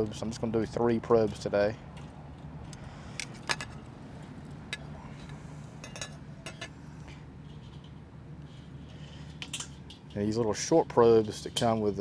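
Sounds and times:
steady low hum: 0.0s - 12.0s
metal tongs clinking on grill grate: 5.8s - 6.7s, 9.4s - 10.4s, 11.0s - 12.0s.

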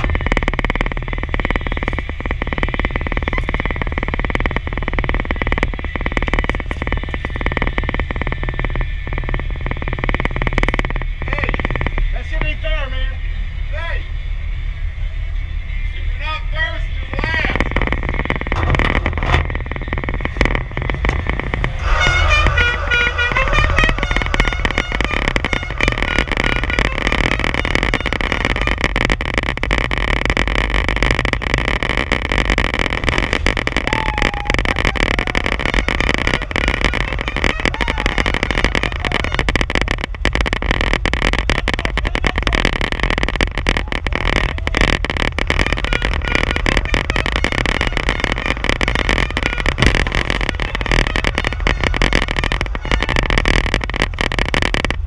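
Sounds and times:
crackling rattles: 0.0s - 14.2s, 16.6s - 55.0s
race car engine at speed: 16.9s - 33.8s
wind buffeting microphone: 17.1s - 29.6s.

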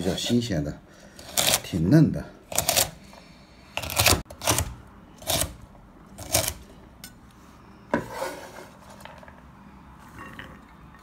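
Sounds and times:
cleaver scraping on cutting board: 7.9s - 9.0s.

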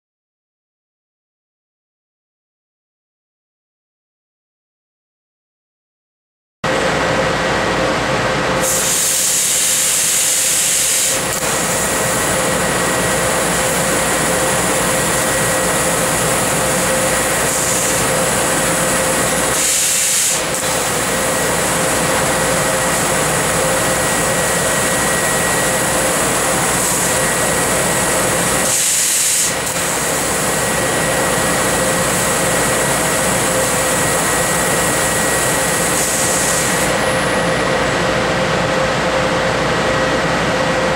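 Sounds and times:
laser cutting machine humming: 6.7s - 40.9s
high gas hissing: 8.6s - 37.3s.

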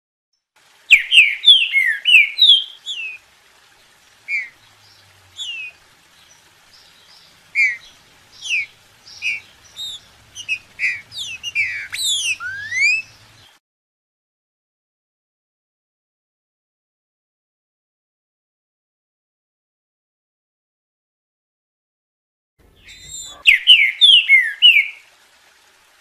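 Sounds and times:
bird singing whistled phrases: 0.9s - 3.2s, 4.3s - 5.8s, 6.8s - 13.2s, 22.8s - 25.1s.

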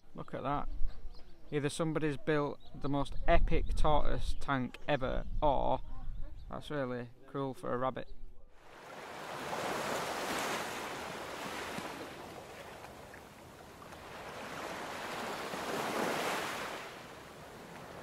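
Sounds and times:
sea waves washing onto shore: 8.7s - 18.0s.

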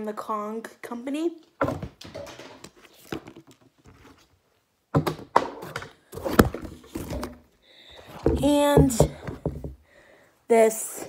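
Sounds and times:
toys knocking on a table: 8.3s - 9.8s.

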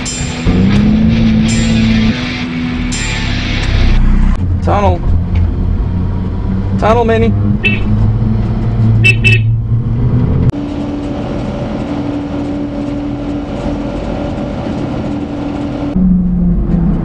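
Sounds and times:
truck engine drone: 0.0s - 17.0s.

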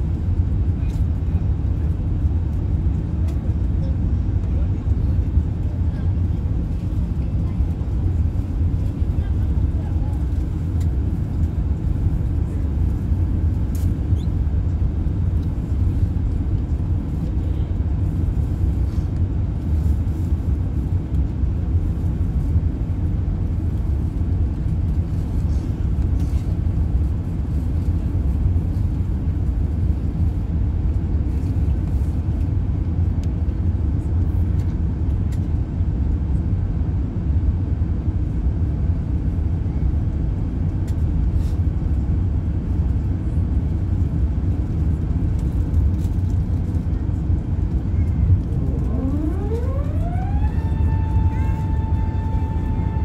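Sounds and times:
jet engines at climb power: 0.0s - 53.0s
air rushing along fuselage: 40.6s - 53.0s.

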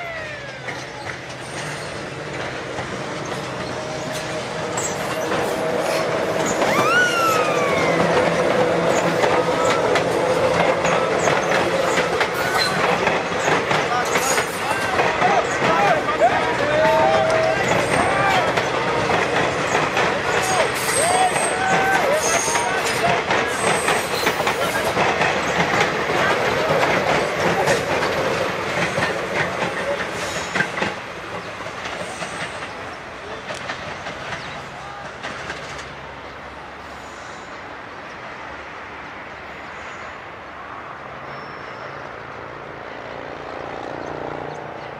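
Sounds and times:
train wheels rumbling on rails: 0.0s - 44.9s.

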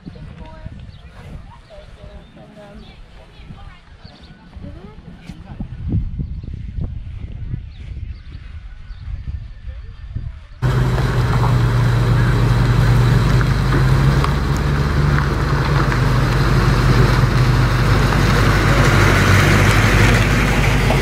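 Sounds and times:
car engine rumbling: 10.6s - 21.0s.

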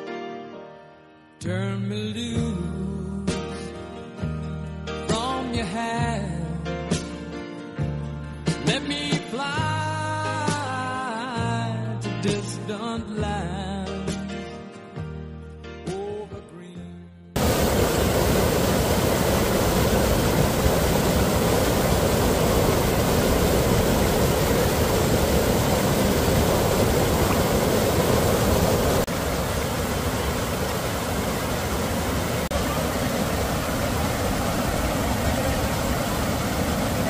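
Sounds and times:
fast-flowing water rushing: 17.4s - 37.0s.

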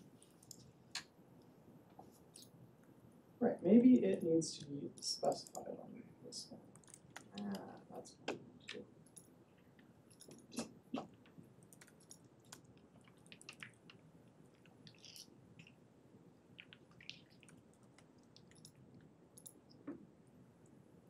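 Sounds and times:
computer keyboard typing: 6.7s - 7.9s, 11.1s - 15.7s.

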